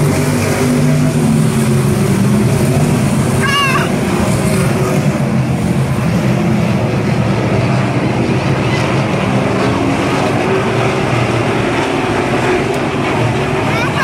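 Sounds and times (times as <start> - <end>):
racing car engines droning: 0.0 - 14.0.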